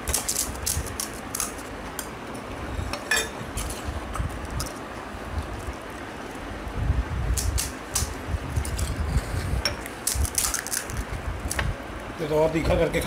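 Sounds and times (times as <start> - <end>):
crisp shells cracking and crunching: 0.0 - 2.1, 9.9 - 11.6.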